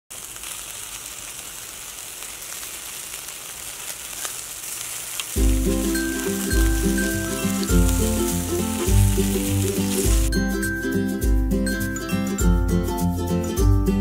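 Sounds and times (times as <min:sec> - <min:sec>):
sharp crackles: 0:00.1 - 0:10.3
meat sizzling on charcoal grill: 0:00.1 - 0:10.8
music with heavy bass: 0:05.4 - 0:14.0.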